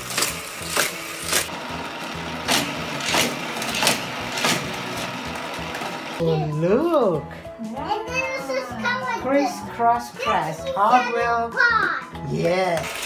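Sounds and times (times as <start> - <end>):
toy cars whirring clack: 0.0 - 1.5, 2.3 - 6.2, 12.8 - 13.0
motorized booster humming: 0.0 - 6.3.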